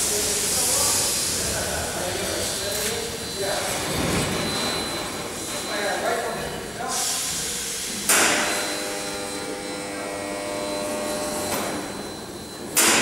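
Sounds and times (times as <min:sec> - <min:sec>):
sharp metallic clang ringing: 0:12.8 - 0:13.0.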